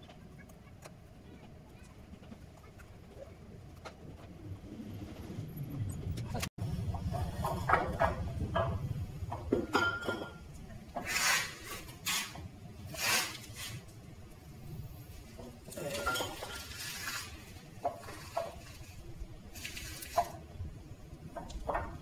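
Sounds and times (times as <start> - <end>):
scraping strokes: 11.0 - 13.9, 16.4 - 20.4.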